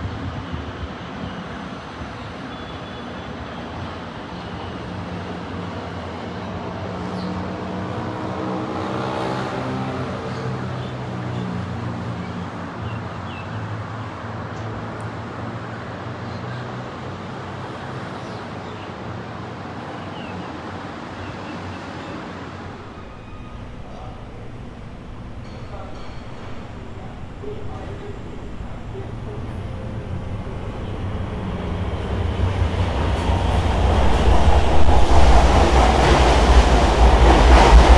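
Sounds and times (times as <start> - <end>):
outdoor traffic noise: 0.0 - 37.9
vehicle humming and whining: 22.7 - 37.9.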